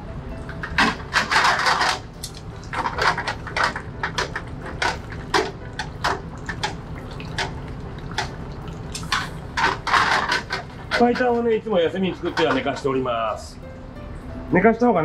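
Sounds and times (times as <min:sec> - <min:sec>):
chopsticks clinking on metal baskets: 0:08.9 - 0:13.1.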